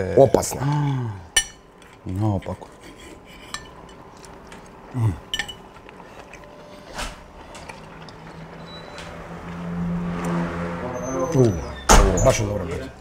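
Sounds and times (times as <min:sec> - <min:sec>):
cutlery clinking against plates: 0:01.4 - 0:04.7, 0:05.3 - 0:05.9
low vocal murmur: 0:04.9 - 0:05.3.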